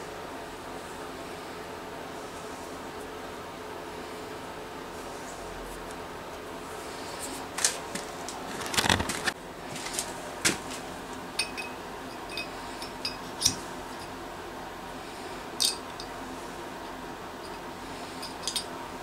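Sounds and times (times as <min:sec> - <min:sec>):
metal tool parts clicking and knocking: 0:15.6 - 0:16.1, 0:18.2 - 0:18.7.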